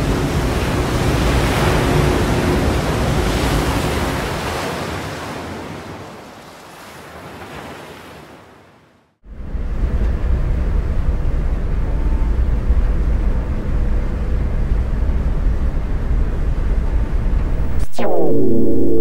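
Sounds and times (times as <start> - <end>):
rushing noise: 17.3 - 19.0
synthesizer music: 17.5 - 19.0.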